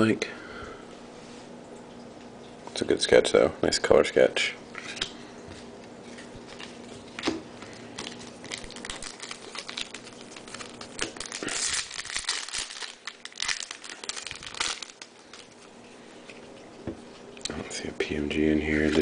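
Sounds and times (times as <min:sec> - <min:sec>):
plastic wrapper crinkling and tearing: 0:06.0 - 0:17.5, 0:18.6 - 0:19.0.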